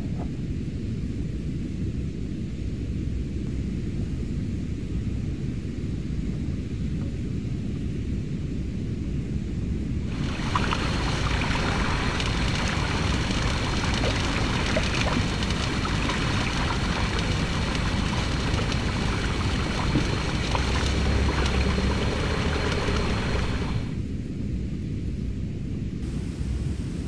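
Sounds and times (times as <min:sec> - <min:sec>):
low wind rumble: 0:00.0 - 0:27.0
lake waves lapping on shore: 0:10.1 - 0:24.0
small water splashes: 0:10.1 - 0:24.0.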